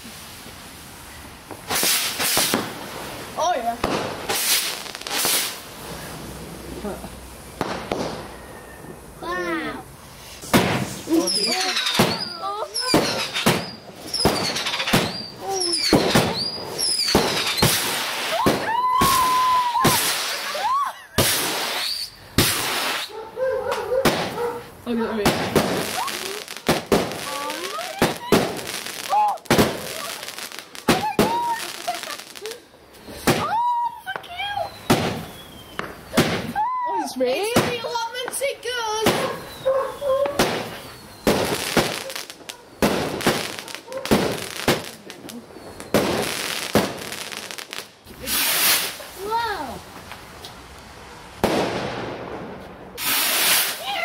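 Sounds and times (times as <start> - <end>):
sparks fizzing: 0.0 - 8.3, 10.0 - 23.1, 25.2 - 33.7, 40.4 - 50.9, 53.0 - 54.0
rockets hissing: 0.0 - 23.2, 24.0 - 33.7, 34.5 - 36.6, 37.2 - 54.0
firework whistling: 0.1 - 6.7, 7.4 - 9.4, 10.0 - 23.1, 25.3 - 38.1, 38.7 - 49.8, 53.0 - 54.0
firework bangs: 1.4 - 9.0, 10.2 - 23.1, 23.7 - 50.2, 50.9 - 54.0.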